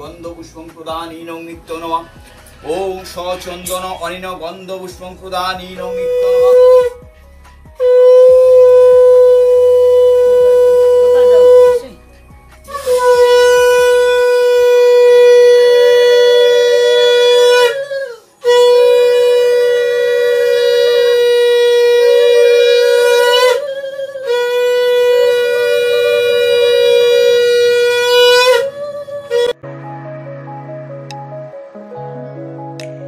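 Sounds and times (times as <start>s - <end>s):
conch shell blasts: 5.8s - 7.0s, 7.8s - 12.0s, 12.6s - 29.6s.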